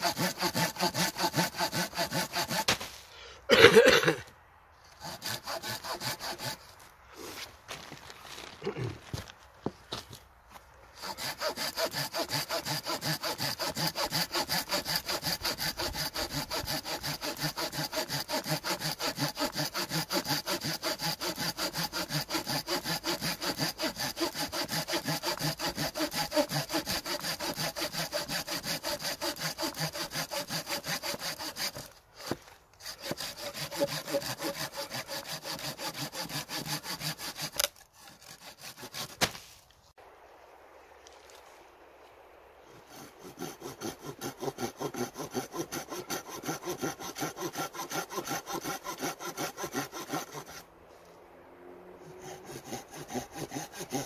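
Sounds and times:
hand saw cutting wood: 0.0s - 3.6s, 4.8s - 7.5s, 10.9s - 39.6s, 42.7s - 51.2s, 51.8s - 54.0s.

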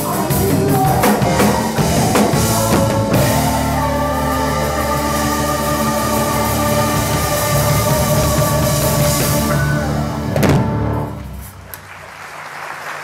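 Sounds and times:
gospel band and choir: 0.0s - 11.2s
audience applause: 11.6s - 13.0s.

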